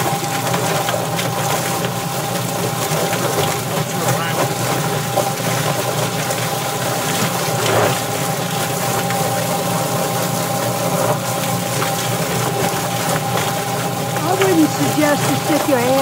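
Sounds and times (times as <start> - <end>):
water spraying: 0.0 - 16.0.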